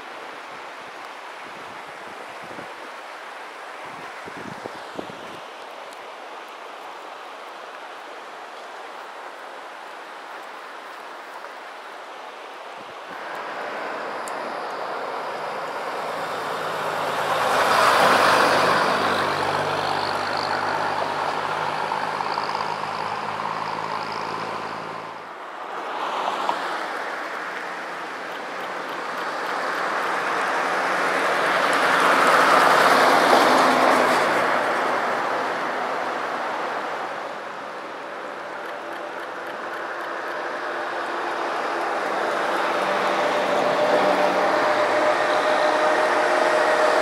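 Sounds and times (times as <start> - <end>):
vehicles passing by: 12.7 - 47.0.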